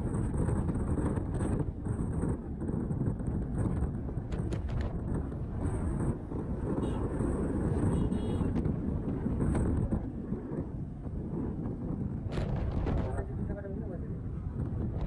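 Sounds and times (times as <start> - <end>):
road noise: 0.0 - 15.0
wind rushing over microphone: 0.0 - 15.0.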